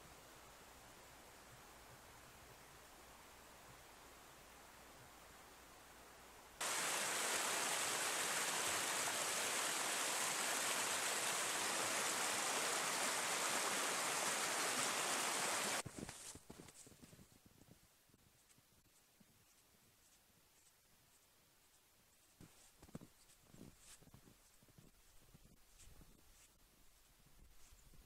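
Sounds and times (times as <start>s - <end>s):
river rushing over rocks: 6.6s - 15.8s.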